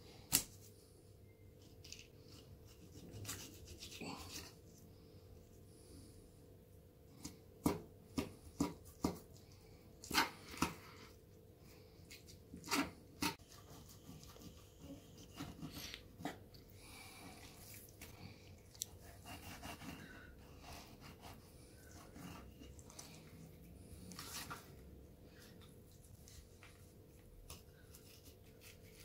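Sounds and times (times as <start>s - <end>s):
knife scraping fish: 1.8s - 4.6s.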